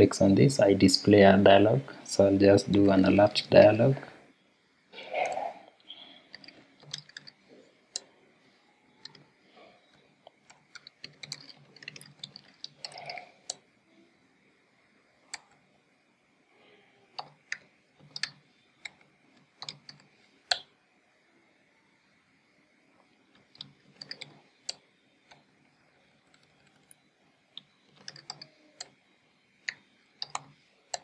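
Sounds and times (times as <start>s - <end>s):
computer keyboard typing: 5.2s - 7.4s, 10.3s - 13.6s, 17.2s - 20.7s, 23.3s - 25.5s, 26.1s - 27.0s, 27.6s - 29.0s, 29.6s - 31.0s.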